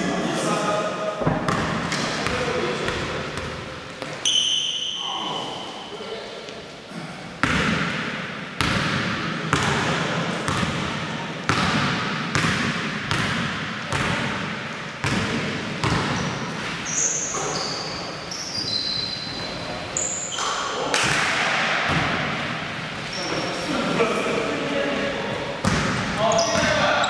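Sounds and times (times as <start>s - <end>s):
sneaker squeaks on floor: 4.0s - 5.9s, 16.0s - 20.7s, 23.0s - 23.6s, 25.6s - 27.0s.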